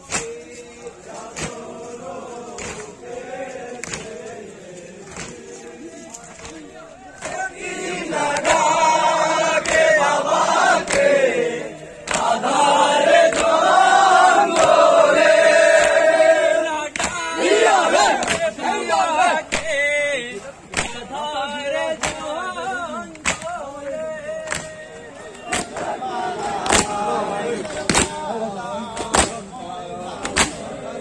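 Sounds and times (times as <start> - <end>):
hands slapping chests: 0.0 - 0.4, 1.3 - 1.7, 2.5 - 3.0, 3.7 - 4.2, 5.0 - 7.5, 8.3 - 8.8, 9.4 - 10.0, 10.7 - 11.2, 12.0 - 12.6, 13.2 - 13.8, 14.4 - 14.8, 15.7 - 16.0, 16.9 - 17.3, 18.0 - 18.6, 19.4 - 19.8, 20.6 - 21.1, 22.0 - 22.4, 23.1 - 23.6, 24.4 - 27.0, 27.6 - 28.2, 30.2 - 30.7
men chanting in unison: 0.0 - 31.0.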